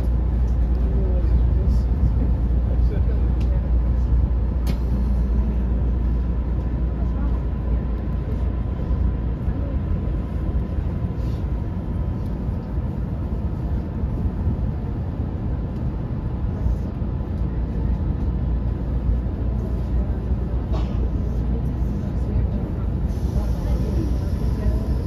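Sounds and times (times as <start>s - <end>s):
train running rumble: 0.0s - 25.0s.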